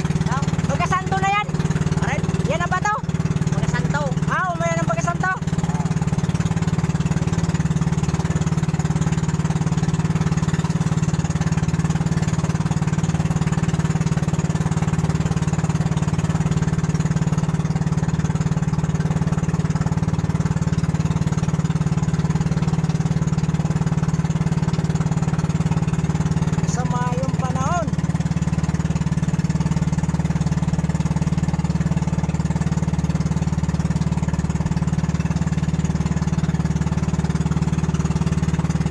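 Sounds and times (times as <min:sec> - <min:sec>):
boat engine running: 0:00.0 - 0:38.9.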